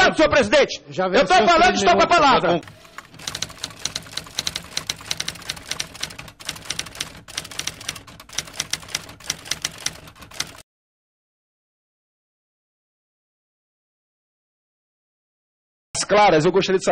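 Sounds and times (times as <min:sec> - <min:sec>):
typewriter keys clacking: 0:02.6 - 0:10.6.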